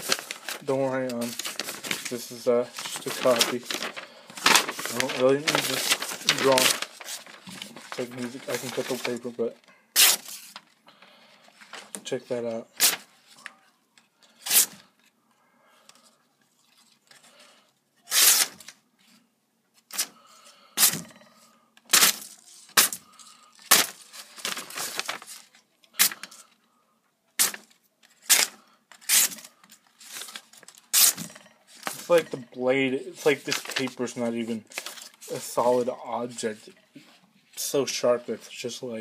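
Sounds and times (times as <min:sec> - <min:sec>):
knife slicing paper: 0:14.5 - 0:14.8, 0:18.1 - 0:18.6, 0:23.7 - 0:25.4, 0:27.4 - 0:31.2.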